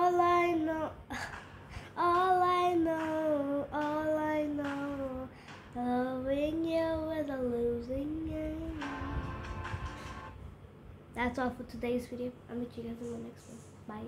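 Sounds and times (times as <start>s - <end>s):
girl singing wordless notes: 0.0s - 10.3s.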